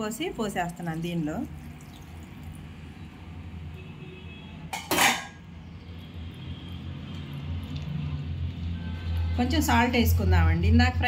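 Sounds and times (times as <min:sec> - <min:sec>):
water pouring into a pan: 0:00.5 - 0:03.1
cookware clattering: 0:04.7 - 0:05.4.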